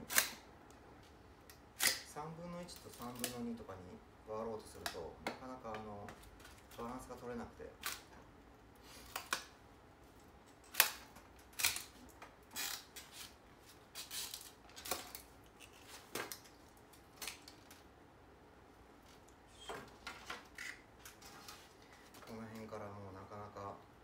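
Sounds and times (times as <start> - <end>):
bamboo splitting cracks: 0.0 - 0.4, 1.5 - 2.1, 2.7 - 3.5, 7.8 - 8.1, 10.7 - 13.0, 14.0 - 17.9.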